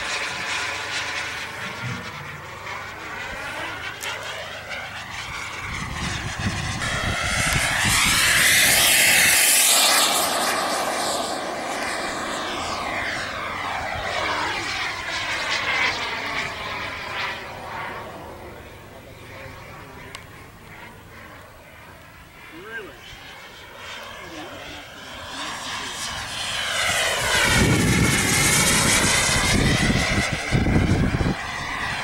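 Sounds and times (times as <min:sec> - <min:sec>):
model jet turbine flying past: 0:00.0 - 0:32.0.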